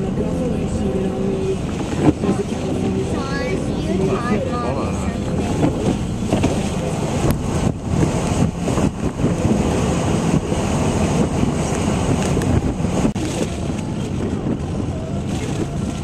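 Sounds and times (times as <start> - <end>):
storm wind buffeting a car: 0.0 - 16.0
spray washing over windshield: 1.6 - 16.0.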